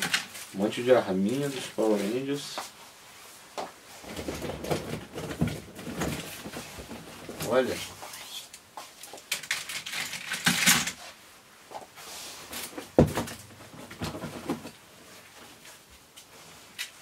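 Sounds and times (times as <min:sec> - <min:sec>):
plastic packaging rustling: 0:03.9 - 0:11.1
toys clattering: 0:09.3 - 0:11.0.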